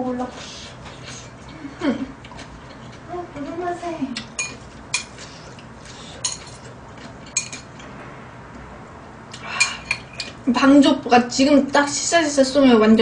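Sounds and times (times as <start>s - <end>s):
chopsticks and spoon clinking bowl: 4.2s - 7.9s, 9.6s - 10.4s.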